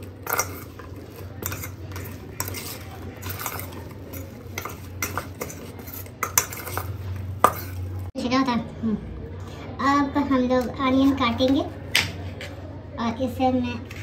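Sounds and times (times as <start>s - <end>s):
spoon clinking and scraping bowl: 0.0s - 8.1s.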